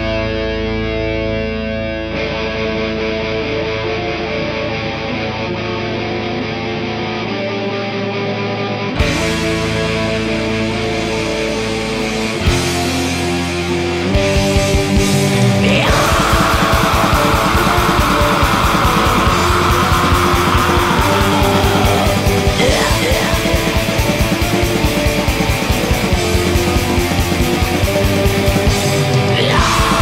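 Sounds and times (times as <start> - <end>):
distorted electric guitars: 0.0 - 30.0
fast dense drumming: 14.4 - 30.0.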